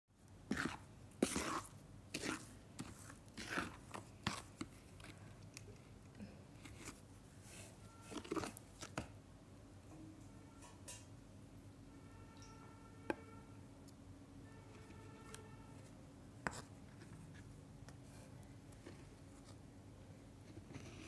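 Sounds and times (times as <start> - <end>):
spoon stirring wet clay paste: 0.2 - 9.2, 14.6 - 19.7.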